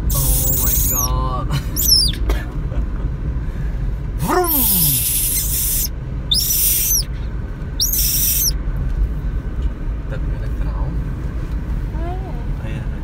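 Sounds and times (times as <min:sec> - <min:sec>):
baby monkey screeching: 0:00.1 - 0:01.1, 0:01.8 - 0:02.2, 0:04.4 - 0:07.1, 0:07.8 - 0:08.6.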